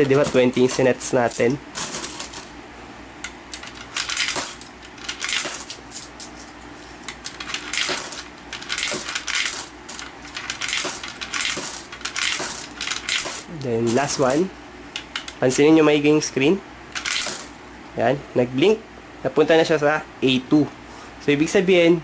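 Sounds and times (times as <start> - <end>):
coins clinking through coin acceptor: 0.0 - 2.5, 3.5 - 14.4, 17.0 - 17.5.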